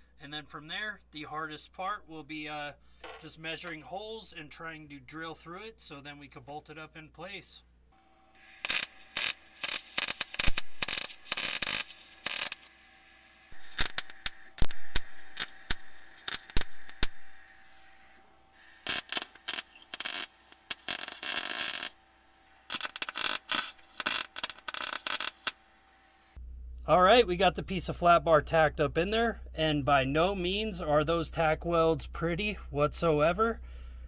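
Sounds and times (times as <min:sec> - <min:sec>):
arc welder crackling: 0:08.3 - 0:26.4.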